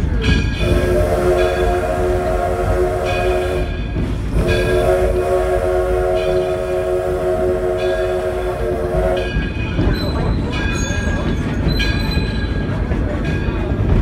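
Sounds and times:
low rumble of train running: 0.0s - 14.0s
steam locomotive whistle: 0.6s - 9.6s.

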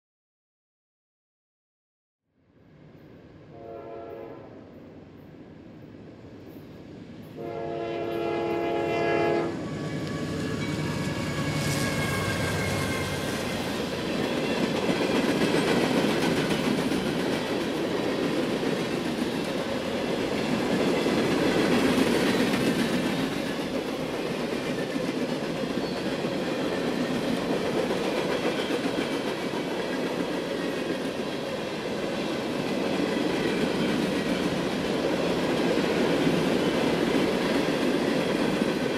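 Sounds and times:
locomotive horn: 3.5s - 4.7s, 7.4s - 9.6s
train wheels clacking over rail joints: 9.9s - 31.6s.

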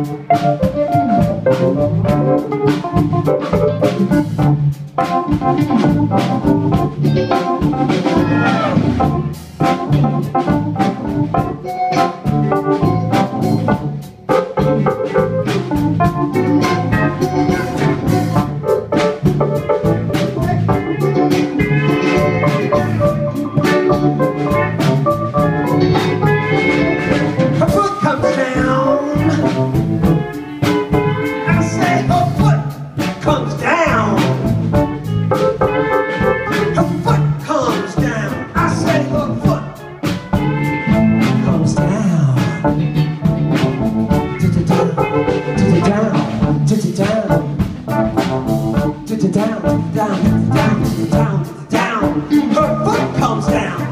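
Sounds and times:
live band playing: 0.0s - 53.9s
pedal steel guitar gliding notes: 20.8s - 27.6s.

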